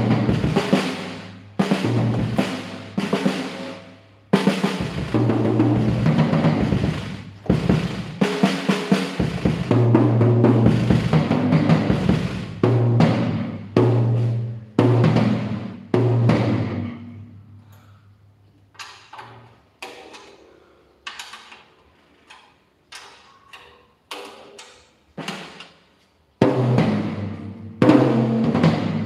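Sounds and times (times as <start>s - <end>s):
loud drum strokes ringing: 0.0s - 17.3s.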